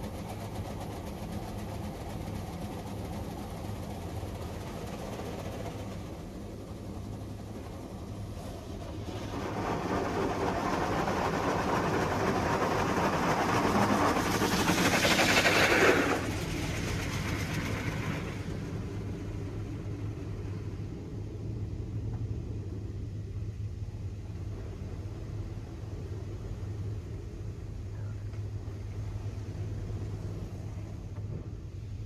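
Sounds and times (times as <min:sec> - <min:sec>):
steady low hum: 0:00.0 - 0:32.0
car wash water spray hissing: 0:07.5 - 0:21.3.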